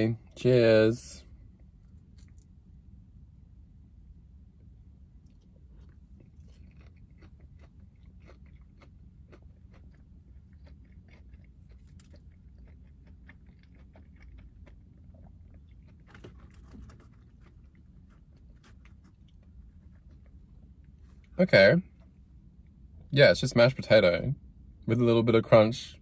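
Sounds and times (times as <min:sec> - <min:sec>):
low steady hum: 0:00.0 - 0:26.0
person chewing crunchy food: 0:05.2 - 0:21.3.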